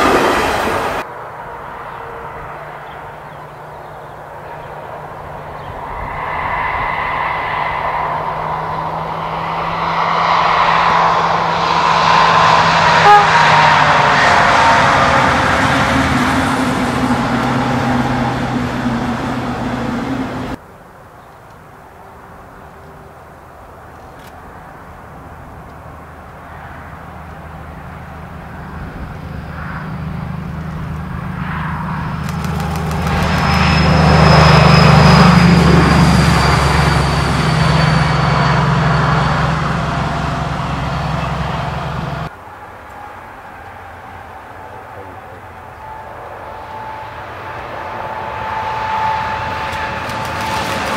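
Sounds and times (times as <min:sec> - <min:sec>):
diesel locomotive passing: 0:00.0 - 0:50.9
distant train: 0:00.0 - 0:50.9
short loud horn note: 0:12.9 - 0:13.9
train wheels rolling: 0:32.1 - 0:42.3, 0:48.4 - 0:50.9
high whistle: 0:32.4 - 0:42.2, 0:45.8 - 0:50.9.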